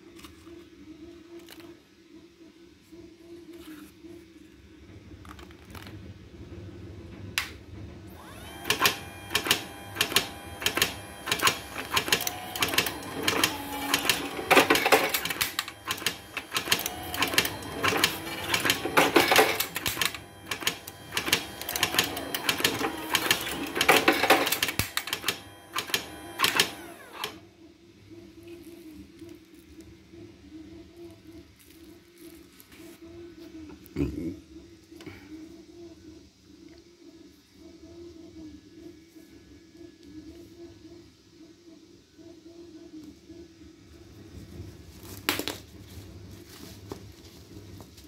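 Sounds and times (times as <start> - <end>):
machine rattling burst: 8.3 - 27.4
machine clicking and clattering: 8.6 - 27.4.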